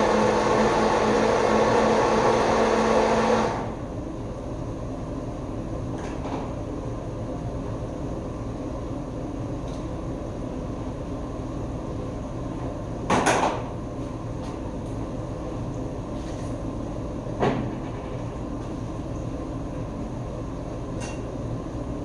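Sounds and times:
kitchen equipment humming: 0:00.0 - 0:04.0.

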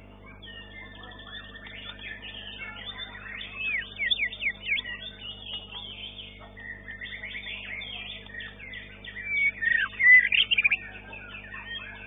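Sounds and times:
bird chirping and whistling: 0:00.4 - 0:12.0.

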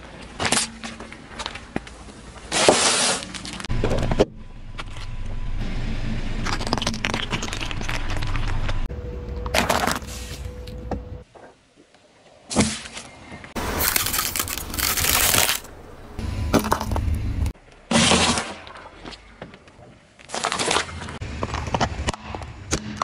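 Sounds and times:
car tyre crushing objects: 0:00.0 - 0:10.8, 0:13.6 - 0:23.0
crunching and cracking bursts: 0:06.3 - 0:08.9, 0:13.6 - 0:16.2.

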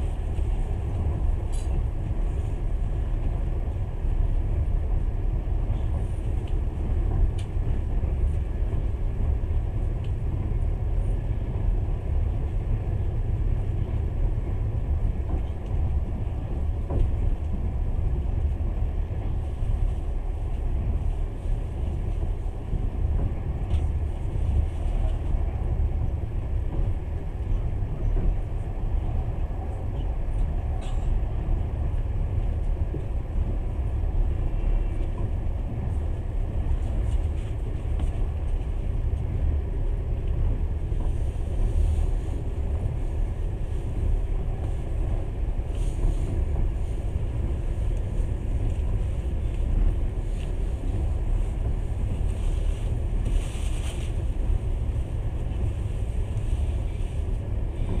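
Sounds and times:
train rumbling: 0:00.0 - 0:58.0.

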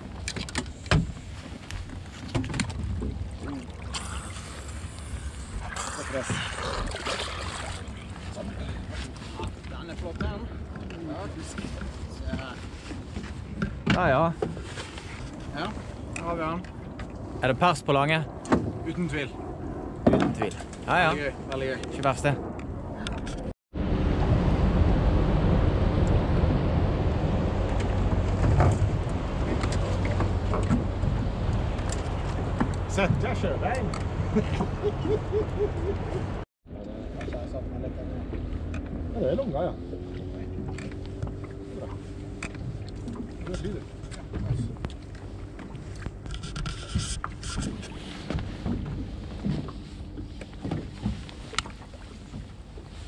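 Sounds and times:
boat engine humming: 0:00.0 - 0:21.7, 0:23.8 - 0:53.0
wind and water noise: 0:00.0 - 0:53.0
wind on microphone: 0:18.2 - 0:36.4.

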